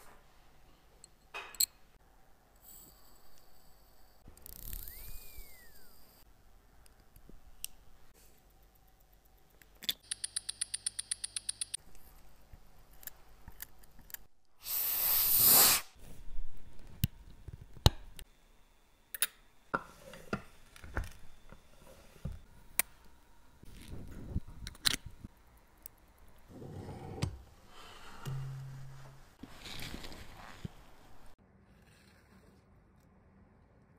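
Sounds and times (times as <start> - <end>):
tools tapping on metal: 9.8 - 11.8, 28.2 - 29.2
air hissing from blower nozzle: 14.6 - 15.9.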